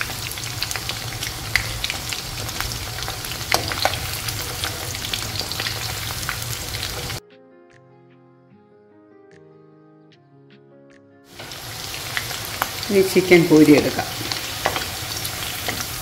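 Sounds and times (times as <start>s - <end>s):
oil sizzling and popping: 0.0s - 7.2s, 11.3s - 16.0s
spoon turning food in oil: 0.0s - 7.2s, 11.4s - 16.0s
soft music: 0.0s - 16.0s.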